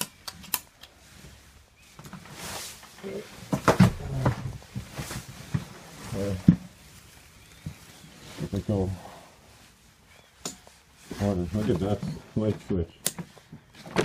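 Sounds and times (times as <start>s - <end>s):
sharp clicks: 0.0s - 0.9s
rustling: 0.1s - 14.0s.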